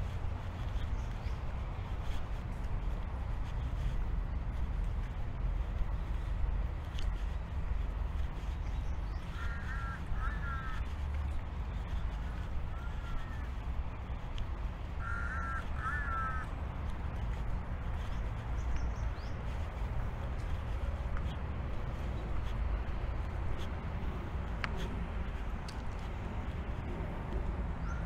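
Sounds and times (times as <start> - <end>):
steady low rumble: 0.0 - 28.0
crow cawing: 9.3 - 10.9, 12.7 - 13.4, 15.0 - 16.5.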